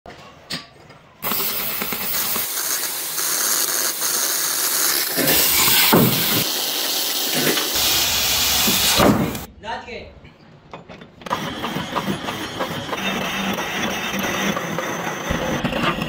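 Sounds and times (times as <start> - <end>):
cutting torch hissing: 1.2 - 9.5.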